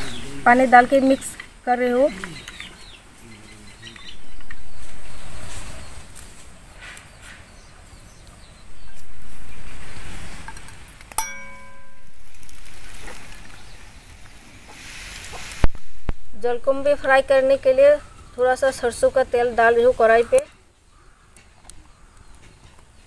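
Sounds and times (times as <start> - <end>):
knife clinking on steel bowl: 11.1 - 12.1.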